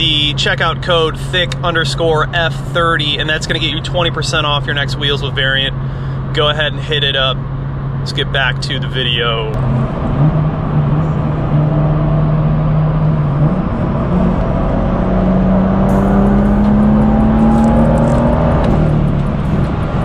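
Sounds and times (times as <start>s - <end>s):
car engine drone in cabin: 0.0s - 20.0s
gear change: 9.4s - 20.0s.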